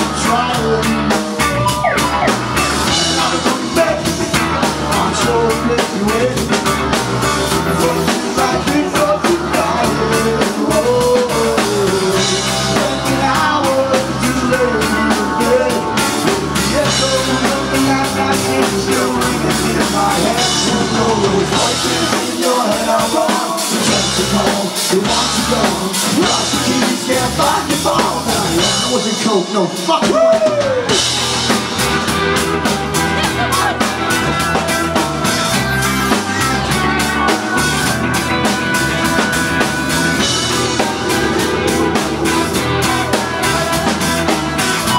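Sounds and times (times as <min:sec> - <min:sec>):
person singing: 0:00.0 - 0:06.7, 0:07.5 - 0:30.9
bass guitar: 0:00.0 - 0:44.9
drum kit: 0:00.0 - 0:44.9
electric guitars: 0:00.0 - 0:44.9.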